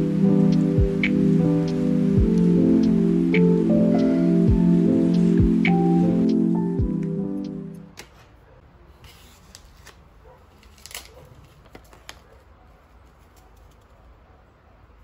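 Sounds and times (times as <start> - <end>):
background music: 0.0 - 8.0
tea bag wrapper crinkling: 10.6 - 12.4.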